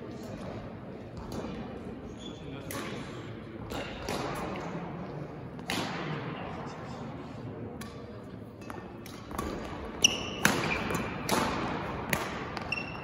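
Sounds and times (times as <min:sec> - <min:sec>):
rackets striking shuttlecock: 0:02.6 - 0:04.8, 0:05.5 - 0:06.2, 0:07.8 - 0:13.0
shoes squeaking on court floor: 0:09.9 - 0:11.2, 0:12.5 - 0:13.0.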